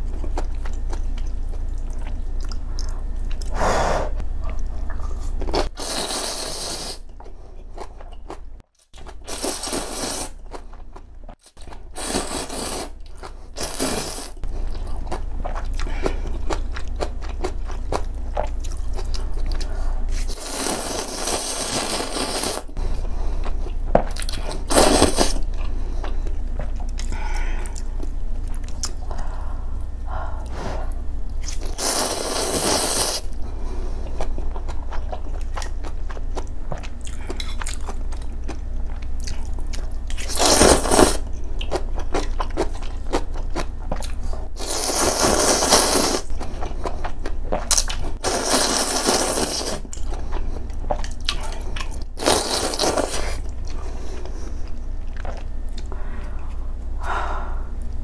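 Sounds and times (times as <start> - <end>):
chewing with wet clicks: 0.2 - 3.5, 14.6 - 19.8, 25.4 - 29.0, 34.0 - 40.3, 41.2 - 44.3, 46.3 - 48.2, 49.8 - 52.1, 53.4 - 56.6
slurping noodles: 5.6 - 7.0, 12.0 - 13.0, 20.1 - 22.7, 31.7 - 33.3.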